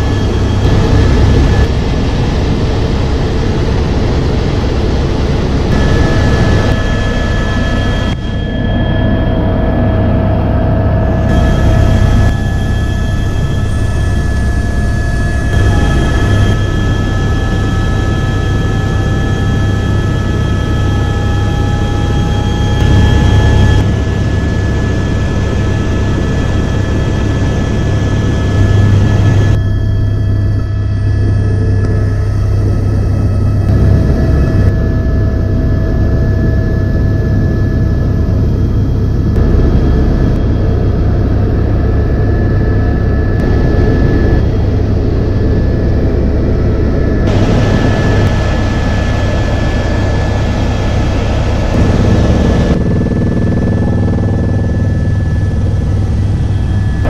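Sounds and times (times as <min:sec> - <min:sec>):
helicopter rotor and engine drone: 0:00.0 - 0:57.0
high engine whine: 0:00.0 - 0:57.0.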